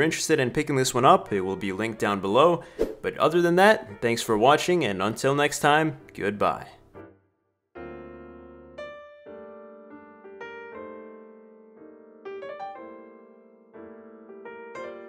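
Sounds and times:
slow piano music: 5.9s - 15.0s.

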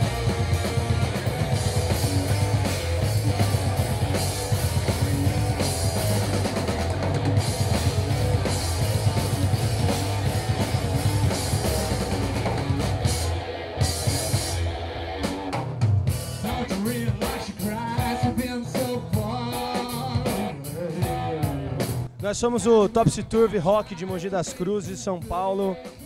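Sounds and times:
rock band playing: 0.0s - 26.0s
drum hits: 22.2s - 25.0s.

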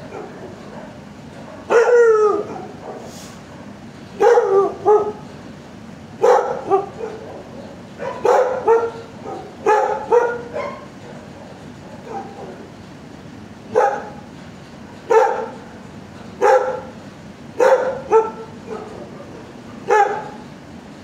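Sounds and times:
dog barking: 0.0s - 5.2s, 6.2s - 12.6s, 13.7s - 14.2s, 15.1s - 15.7s, 16.4s - 17.0s, 17.6s - 20.4s.

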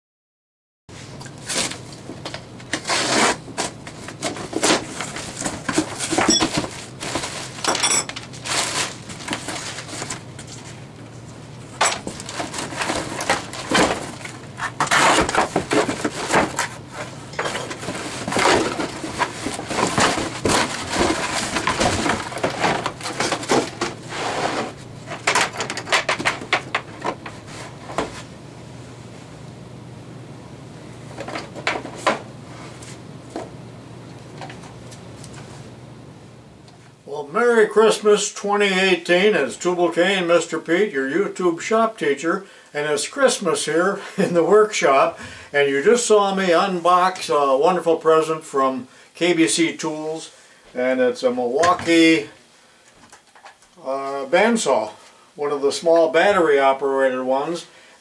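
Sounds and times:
plastic packing crinkling: 1.2s - 10.9s, 12.0s - 24.1s
cardboard box flaps rustling: 12.0s - 24.8s.

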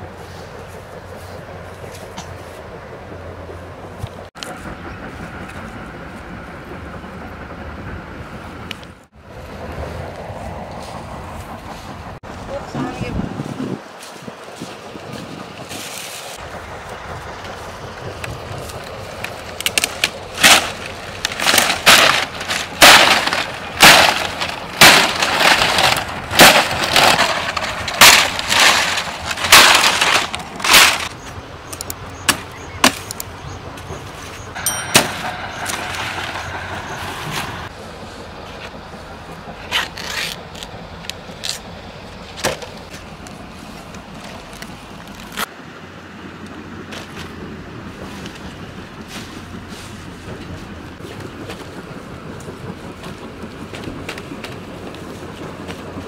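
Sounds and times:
leaves rustling: 9.2s - 31.7s, 46.9s - 51.8s
palm stalks cracking and snapping: 18.2s - 33.3s, 39.7s - 41.7s.

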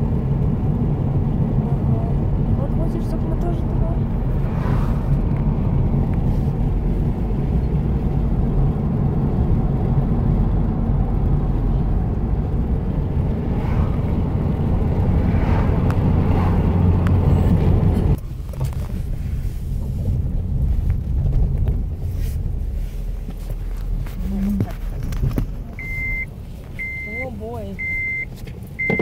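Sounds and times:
car cabin road rumble: 0.0s - 29.0s
cars swishing past: 2.2s - 8.4s, 10.5s - 20.3s.

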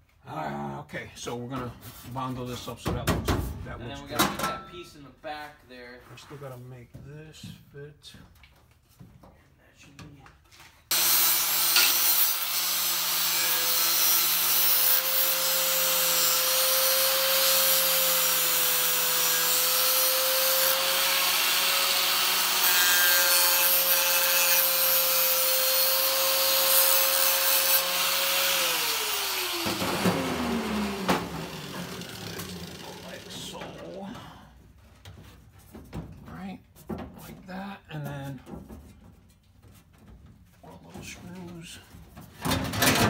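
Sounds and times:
angle grinder grinding metal: 10.9s - 34.0s.

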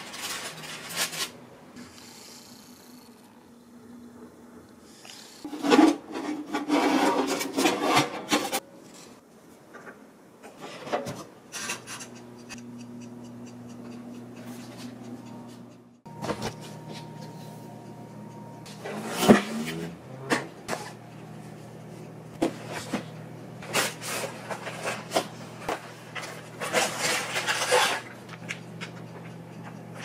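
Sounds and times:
oven humming: 0.0s - 30.0s
tray scraping into oven: 5.5s - 8.6s, 18.7s - 21.0s, 26.2s - 28.2s.

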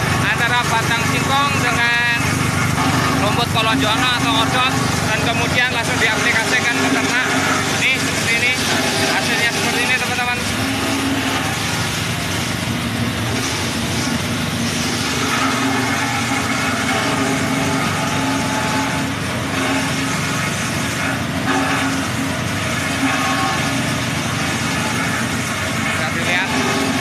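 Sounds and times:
engine running steadily: 0.0s - 27.0s.

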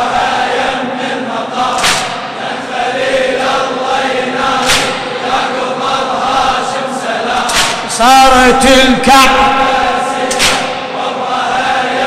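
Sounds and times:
men chanting in unison: 0.0s - 12.0s.

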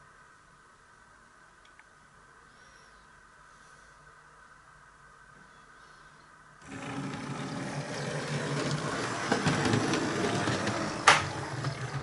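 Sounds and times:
model locomotive whirring and rattling: 6.6s - 12.0s.

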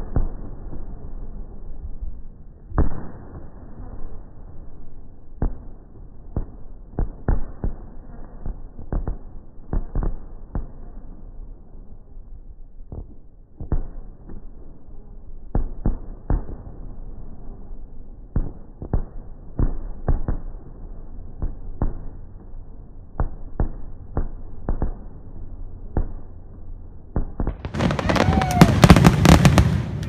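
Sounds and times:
firework shells bursting: 27.4s - 30.0s.

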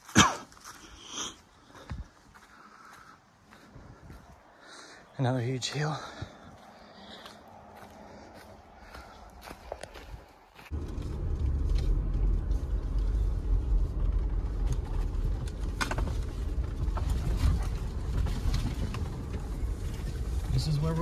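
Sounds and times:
vehicle rumbling on dirt trail: 0.0s - 21.0s.

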